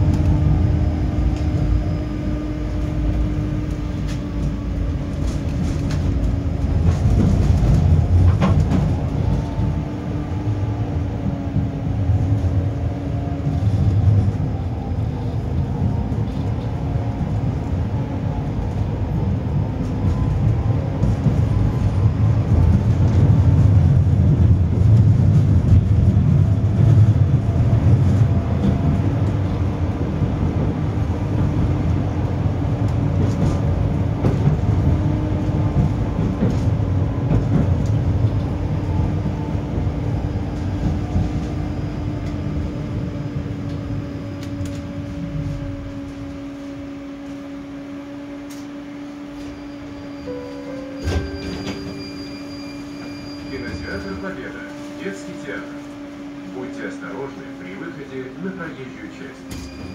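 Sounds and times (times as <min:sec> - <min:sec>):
faint tram whine: 0:00.0 - 0:59.9
tram rumbling on rails: 0:00.0 - 0:59.9.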